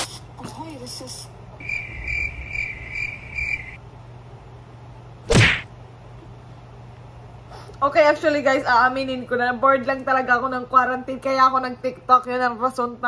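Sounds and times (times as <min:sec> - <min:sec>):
cricket chirping: 0:01.6 - 0:03.8.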